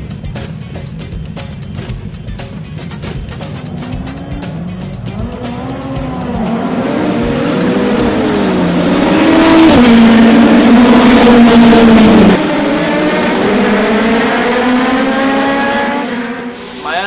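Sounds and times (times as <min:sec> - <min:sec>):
racing car engines at high revs: 0:03.3 - 0:16.9.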